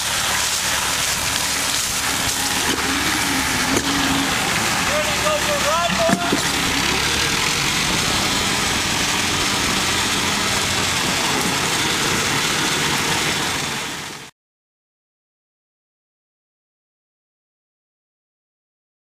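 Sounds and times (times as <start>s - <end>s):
dense rushing noise: 0.0s - 14.3s
tractor engine running: 0.0s - 14.3s.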